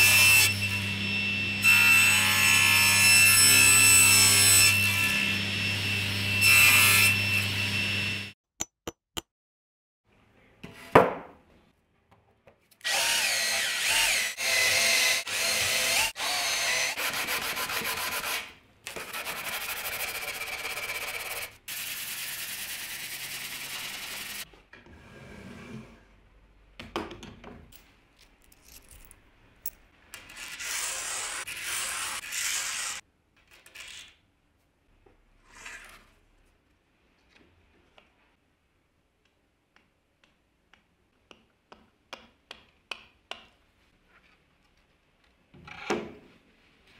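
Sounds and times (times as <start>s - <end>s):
hand sanding a board: 19.0s - 21.5s.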